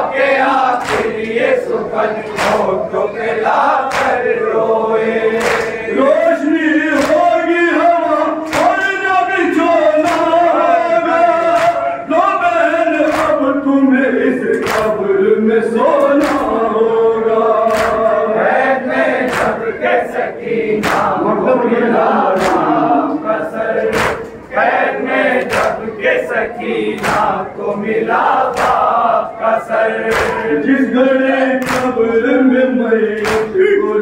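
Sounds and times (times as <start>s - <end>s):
men chanting in unison: 0.0s - 34.0s
chest-beating slaps: 0.8s - 1.4s, 2.3s - 2.7s, 3.9s - 4.2s, 5.4s - 5.8s, 8.5s - 8.8s, 10.0s - 10.4s, 17.7s - 18.1s, 19.2s - 19.6s, 20.8s - 21.2s, 22.4s - 22.7s, 23.8s - 24.5s, 25.4s - 25.8s, 27.0s - 27.4s, 28.5s - 28.9s, 30.1s - 30.5s, 31.6s - 31.9s, 33.2s - 33.6s.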